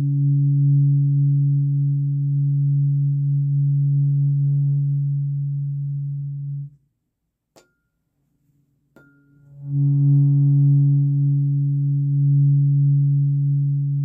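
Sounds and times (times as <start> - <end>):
tuning fork ringing: 9.0 - 14.0.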